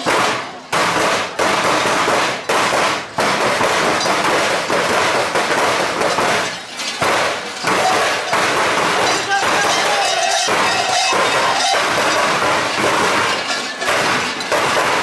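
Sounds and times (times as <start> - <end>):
large bells clanging: 5.6 - 15.0.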